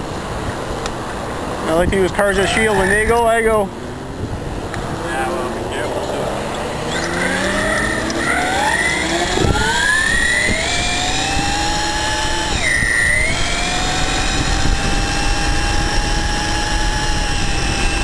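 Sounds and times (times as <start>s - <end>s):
wind and road noise: 0.0s - 18.0s
electric motor whining: 4.4s - 18.0s.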